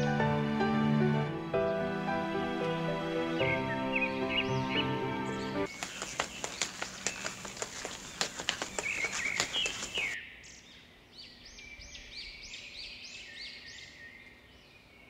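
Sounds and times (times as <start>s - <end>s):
bird chirping: 3.2s - 15.0s
footsteps crunching on dirt: 5.7s - 10.2s.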